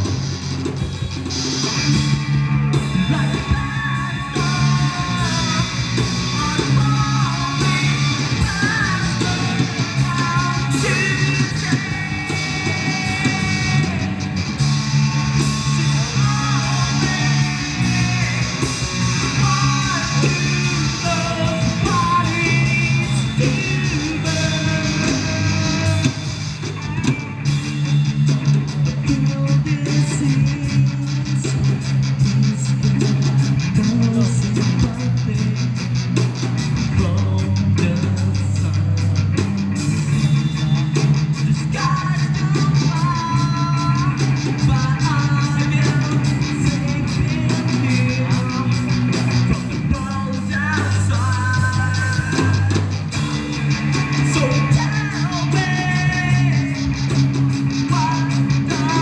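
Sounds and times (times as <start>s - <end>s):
live rock band playing: 0.0s - 59.0s
person singing: 2.7s - 39.4s, 40.1s - 59.0s.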